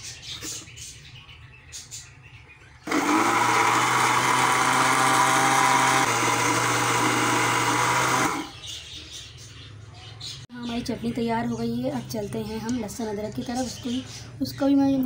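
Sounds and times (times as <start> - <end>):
blender motor grinding: 2.8 - 8.5.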